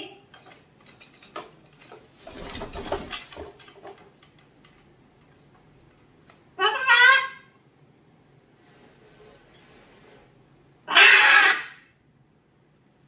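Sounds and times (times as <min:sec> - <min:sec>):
parrot moving on wooden perch: 0:00.4 - 0:05.6
parrot loud call: 0:06.6 - 0:07.5, 0:10.8 - 0:11.9
soft scraping rustle: 0:08.4 - 0:10.6.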